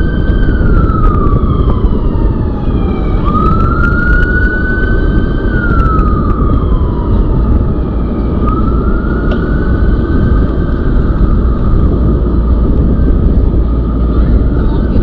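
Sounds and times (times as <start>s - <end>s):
emergency siren wailing: 0.0s - 15.0s
wind rumble on microphone: 0.0s - 15.0s.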